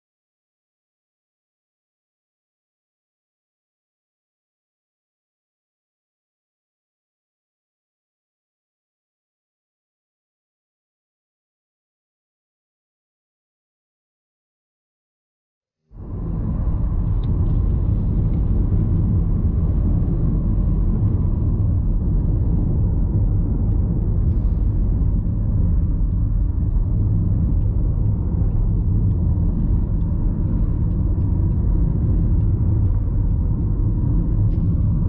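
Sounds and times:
car driving on road: 16.0 - 35.0.

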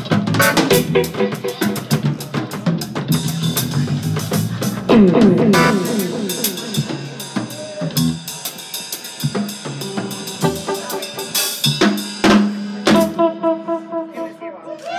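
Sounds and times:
bass and keyboard notes: 0.0 - 8.5, 9.2 - 14.9
drum kit hits: 0.0 - 13.7.

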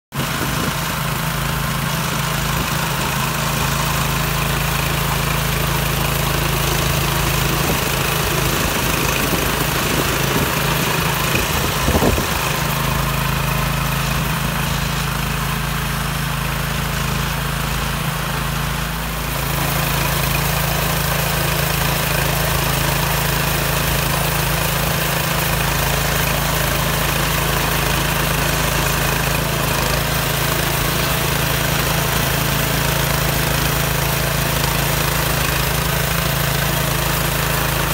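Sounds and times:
loud clatter: 0.1 - 18.7
small petrol engine running: 0.1 - 37.9
wire brush scrubbing paving stones: 1.9 - 15.2, 19.3 - 37.9.

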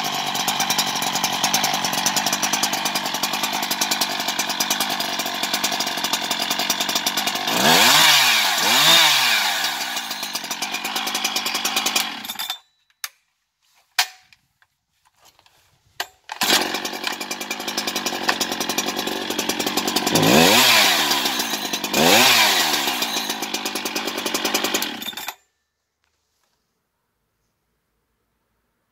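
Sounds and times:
chainsaw idling and revving: 0.0 - 12.6, 16.4 - 25.4.

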